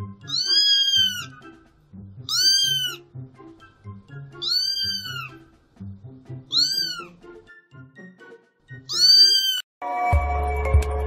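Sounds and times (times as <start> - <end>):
soft background music: 0.0 - 11.0
kitten meowing: 0.2 - 1.4, 2.3 - 3.0, 4.4 - 5.4, 6.5 - 7.2, 8.9 - 9.6.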